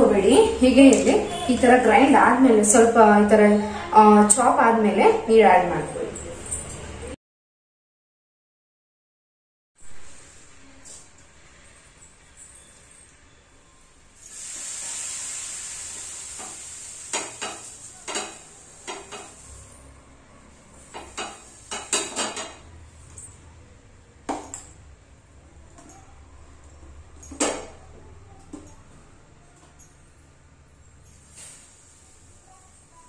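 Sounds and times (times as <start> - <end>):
water sizzling on hot pan: 14.2 - 19.9, 20.7 - 22.5
steel vessels clinking on pan: 16.4 - 19.9, 20.8 - 23.4.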